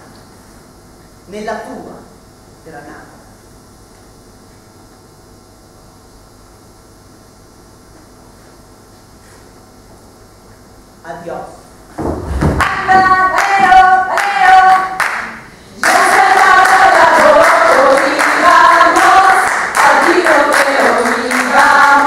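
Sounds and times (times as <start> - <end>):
heavy thud: 11.9 - 13.8
group singing unaccompanied: 12.6 - 22.0
hand-clapping: 12.6 - 22.0.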